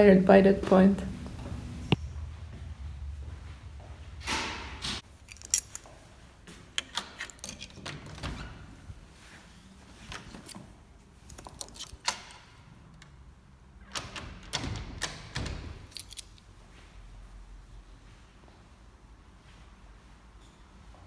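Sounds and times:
keys jingling: 5.0 - 6.0, 6.8 - 8.3, 10.2 - 12.6, 15.8 - 16.5
glass door opening: 6.8 - 8.9.

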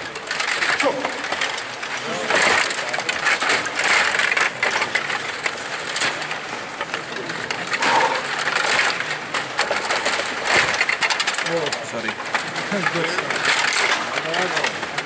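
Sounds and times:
plastic players clattering against puck: 0.0 - 15.0
table hockey rods sliding and spinning: 7.5 - 9.0.

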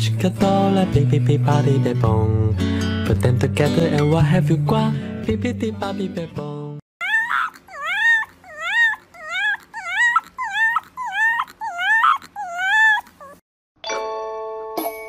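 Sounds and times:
puppy whining and yelping: 7.0 - 13.4.

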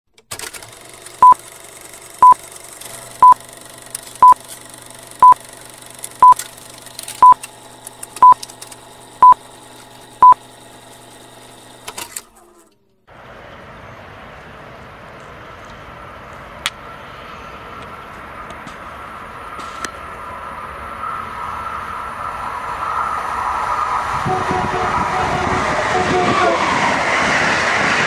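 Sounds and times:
outdoor background noise: 0.1 - 26.0
short high beeps: 5.2 - 5.4, 6.2 - 6.4.

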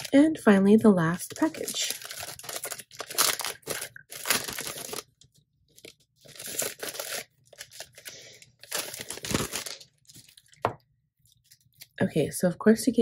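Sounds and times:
plastic packaging crinkling and tearing: 1.2 - 10.7.

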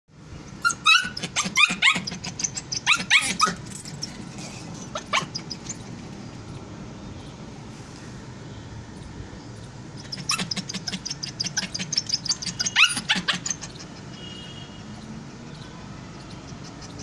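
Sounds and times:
puppy yapping barks: 0.6 - 3.7, 4.9 - 5.8, 10.0 - 13.8.

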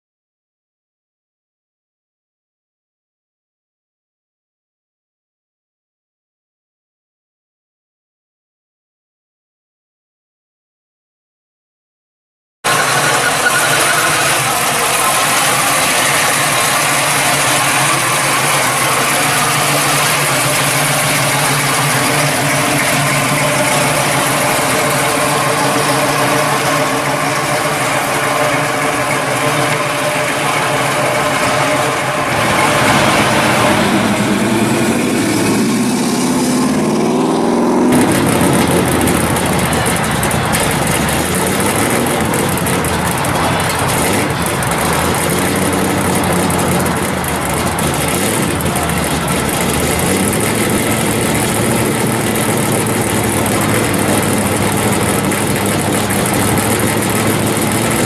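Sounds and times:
car engine idling with deep note: 12.7 - 58.0
car engine rumbling and revving: 12.7 - 58.0.

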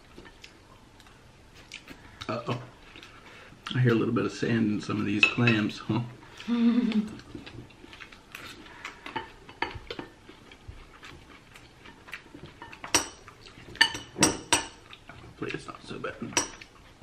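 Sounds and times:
person humming: 6.4 - 7.2
utensils clinking on ceramic bowls: 11.8 - 14.8, 16.2 - 16.7.

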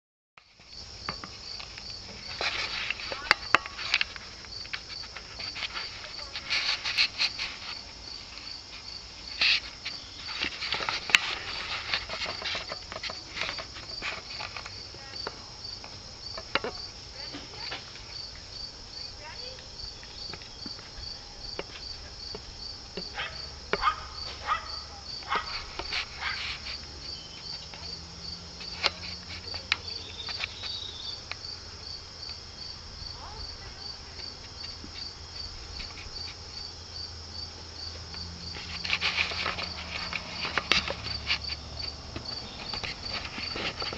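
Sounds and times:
crickets chirping: 0.4 - 43.9
rustling: 0.5 - 15.5, 23.1 - 31.4, 38.0 - 43.9.

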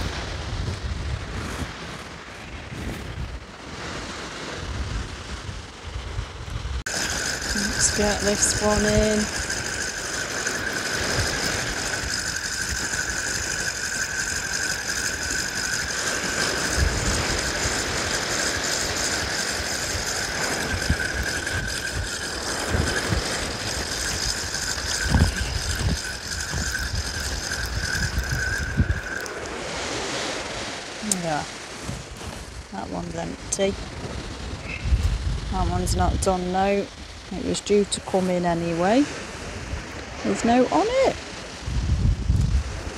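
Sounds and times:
fishing reel whirring: 6.9 - 31.8.

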